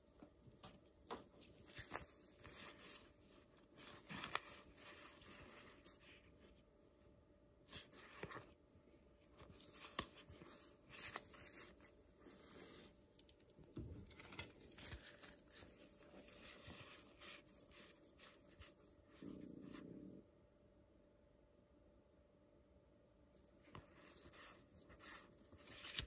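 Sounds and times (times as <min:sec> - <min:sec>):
trading cards rustling and clicking: 0:00.5 - 0:06.2, 0:09.2 - 0:19.8, 0:23.6 - 0:26.0.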